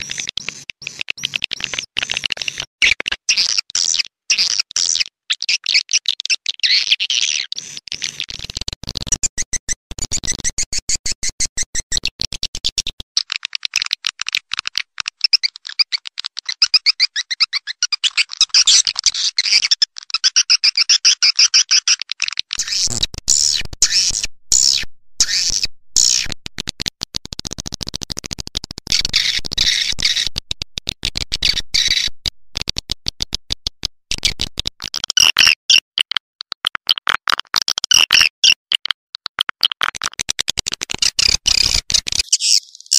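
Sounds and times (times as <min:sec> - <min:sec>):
swiftlet chirps and twitters: 0:22.6 - 0:26.3, 0:41.2 - 0:42.9.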